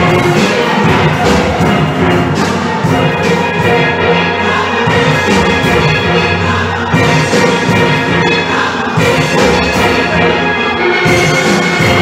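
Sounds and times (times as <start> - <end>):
steel band playing: 0.0 - 12.0.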